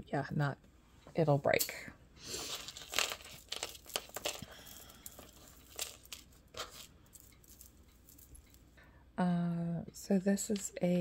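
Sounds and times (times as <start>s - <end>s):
beads and metal chain clicking: 2.4s - 8.7s.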